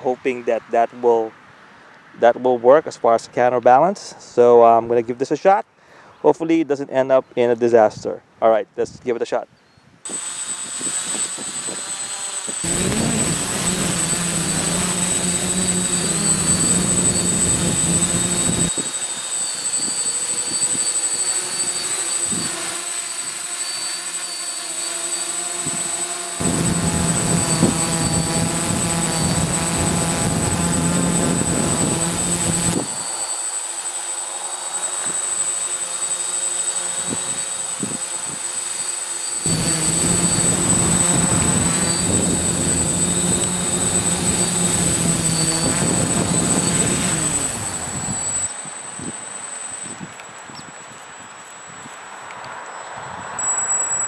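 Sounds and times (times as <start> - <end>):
drone propellers whirring: 10.1 - 51.1
wind buffeting microphone: 26.4 - 33.0, 39.5 - 48.4.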